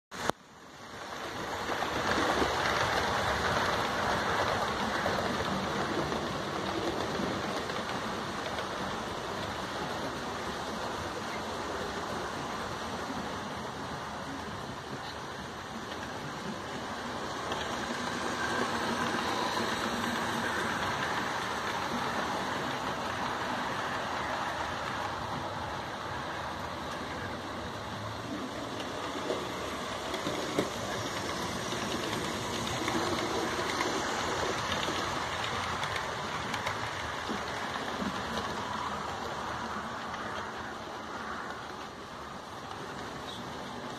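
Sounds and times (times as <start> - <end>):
model train motor whirring on rails: 15.4 - 40.4.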